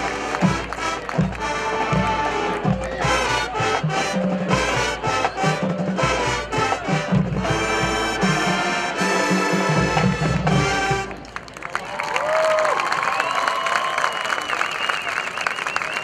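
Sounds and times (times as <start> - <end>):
marching band playing: 0.0 - 11.6.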